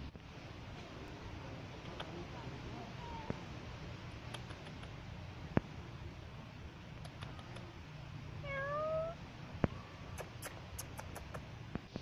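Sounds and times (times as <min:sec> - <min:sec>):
cat meowing: 0:08.4 - 0:09.2.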